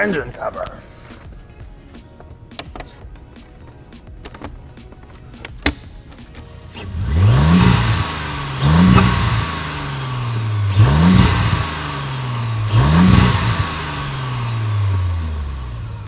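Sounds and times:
car engine revving: 5.7s - 16.0s
intake and turbo rush: 6.6s - 16.0s.

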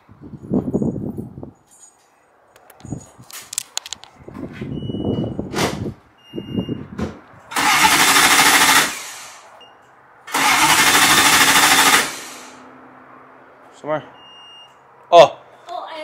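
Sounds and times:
car engine cranking: 7.5s - 9.4s, 10.3s - 12.6s.

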